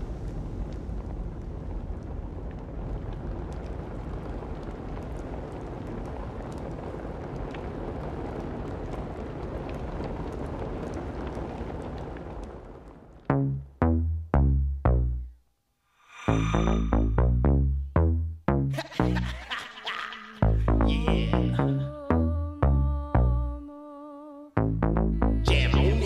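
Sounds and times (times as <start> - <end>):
fire rushing: 0.0 - 13.3, 16.0 - 17.2
fire crackling: 0.0 - 23.6.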